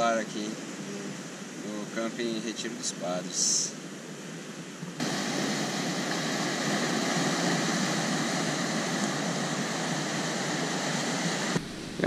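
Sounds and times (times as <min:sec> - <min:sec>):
waves breaking on rocky shore: 0:05.0 - 0:12.0.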